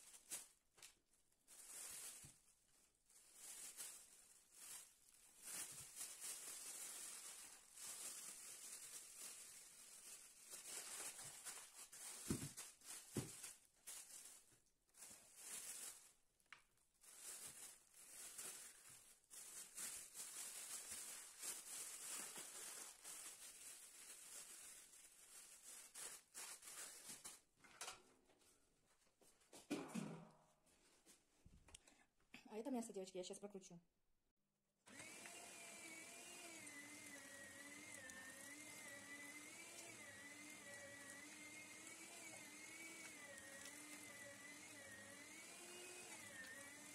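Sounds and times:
plastic bag crinkling: 0:00.0 - 0:27.6, 0:34.9 - 0:46.9
meat grinder motor whine: 0:34.9 - 0:46.9.

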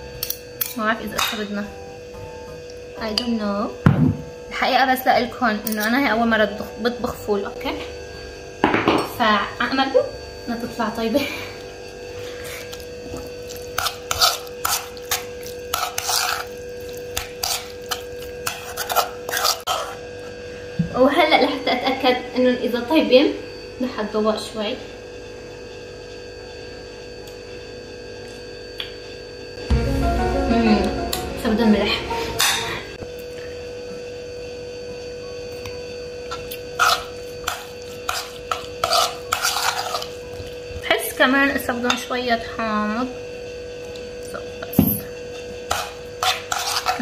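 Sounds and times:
steady hum: 0:00.0 - 0:21.4, 0:28.6 - 0:34.9
metal spoon scraping metal bowl: 0:13.5 - 0:20.0, 0:36.7 - 0:40.3, 0:45.7 - 0:47.0.

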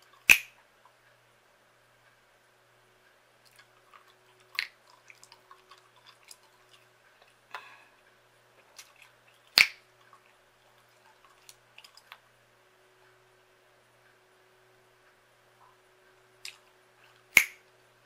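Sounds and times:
gum snaps: 0:00.0 - 0:00.6, 0:03.4 - 0:07.7, 0:08.8 - 0:10.2, 0:16.4 - 0:16.6, 0:17.2 - 0:17.7
gum chewing wet smacks: 0:03.4 - 0:07.8, 0:08.6 - 0:12.2.

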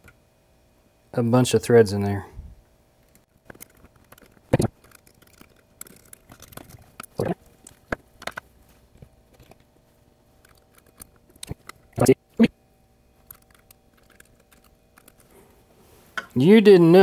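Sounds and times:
hand tools clicking and scraping: 0:03.0 - 0:09.7, 0:10.4 - 0:12.1, 0:13.2 - 0:15.5
handling noise: 0:03.0 - 0:12.1, 0:13.0 - 0:16.4.

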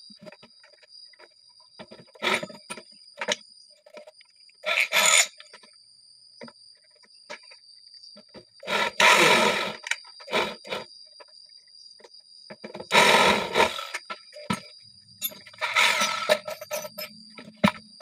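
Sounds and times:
electric drill bursts: 0:08.6 - 0:10.8, 0:12.9 - 0:14.0, 0:15.6 - 0:16.4.

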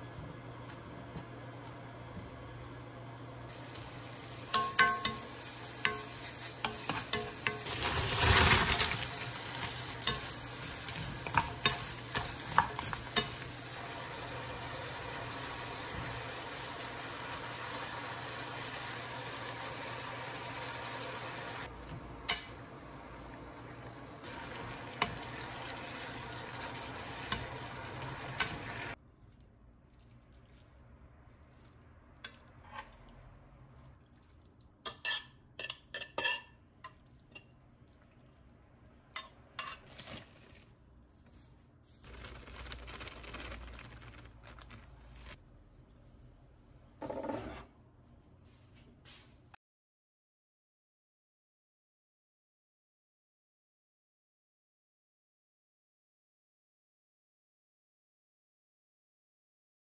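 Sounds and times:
food sizzling in a frying pan: 0:03.4 - 0:29.0
utensil stirring food: 0:03.5 - 0:22.7, 0:23.7 - 0:47.6
dishes clinking: 0:04.5 - 0:08.0, 0:34.9 - 0:37.5.

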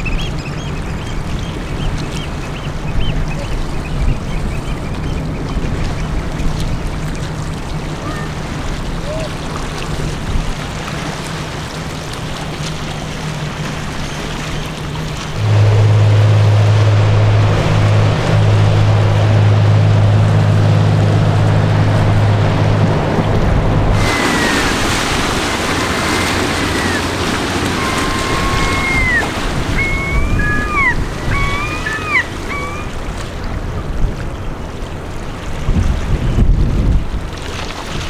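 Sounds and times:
gulls calling: 0:00.0 - 0:09.4, 0:23.9 - 0:33.8
water noise: 0:00.0 - 0:38.0
wind: 0:00.0 - 0:38.0
ship's horn blast: 0:15.2 - 0:33.8.

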